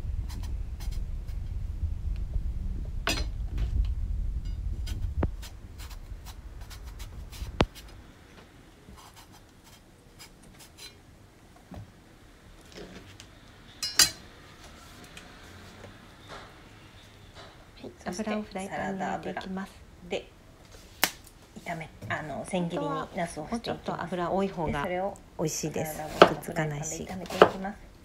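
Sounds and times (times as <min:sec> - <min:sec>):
low rumble: 0:00.0 - 0:08.2.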